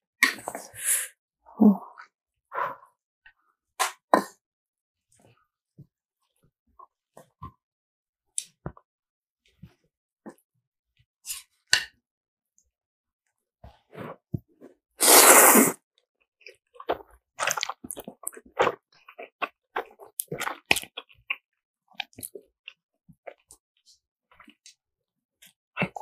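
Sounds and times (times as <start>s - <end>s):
person slurping noodles: 15.0s - 15.8s
wet chewing and mouth clicks: 16.8s - 23.5s.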